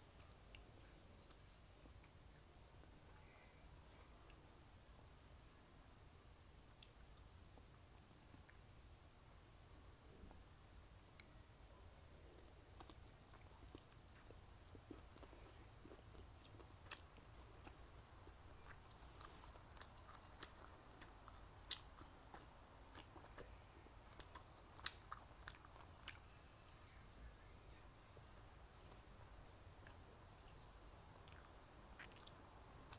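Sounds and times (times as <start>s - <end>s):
chewing food: 0.0s - 3.2s, 12.2s - 26.9s, 27.8s - 32.9s.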